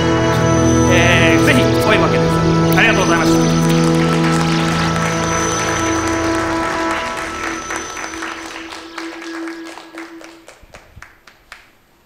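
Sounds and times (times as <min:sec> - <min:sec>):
closing music with held note: 0:00.0 - 0:10.6
audience applause: 0:02.8 - 0:12.0.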